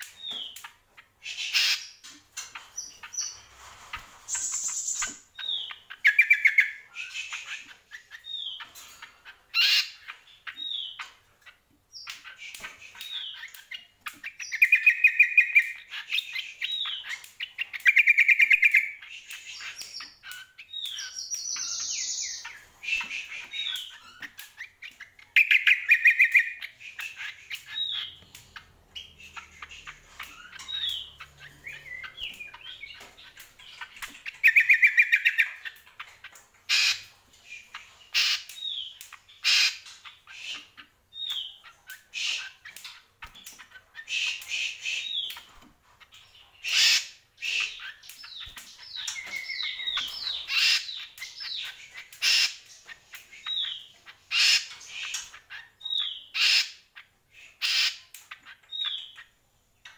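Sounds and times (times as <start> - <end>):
bird singing whistles and trills: 4.3 - 8.7, 12.0 - 28.3, 29.0 - 35.8, 43.5 - 45.5, 46.6 - 52.5.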